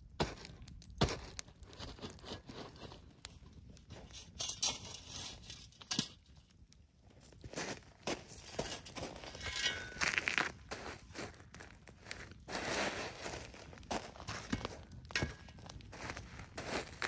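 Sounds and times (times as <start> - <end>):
campfire crackling and popping: 0.0 - 17.0
sharp cracks of fire: 0.0 - 17.0
fire flaring with a rush: 10.5 - 17.0.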